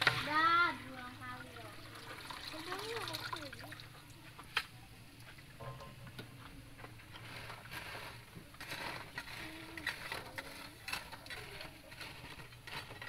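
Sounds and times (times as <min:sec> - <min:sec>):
metal spatula scraping mesh: 0:07.1 - 0:13.0.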